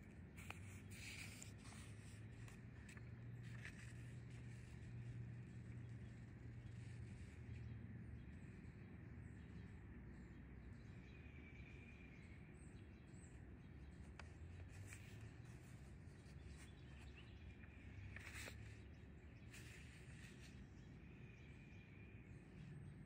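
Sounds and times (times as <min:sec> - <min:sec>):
paper page rustling: 0:00.3 - 0:07.4, 0:14.0 - 0:20.7.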